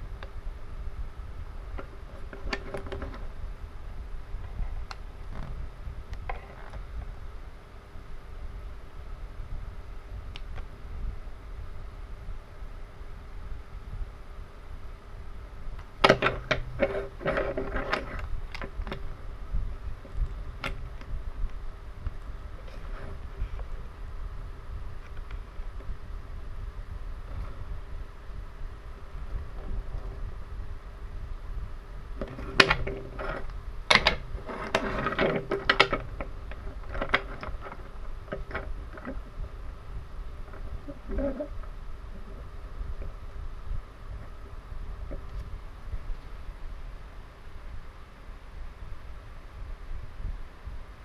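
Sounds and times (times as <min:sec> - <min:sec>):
wooden toys clacking together: 0:16.0 - 0:19.0, 0:32.2 - 0:39.2.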